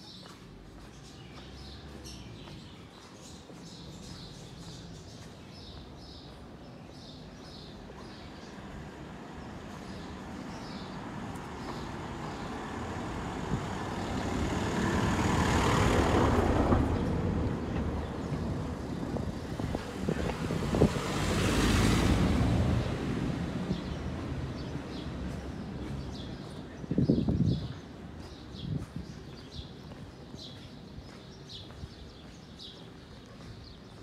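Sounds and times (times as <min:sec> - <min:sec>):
vehicles passing: 0:00.1 - 0:34.0.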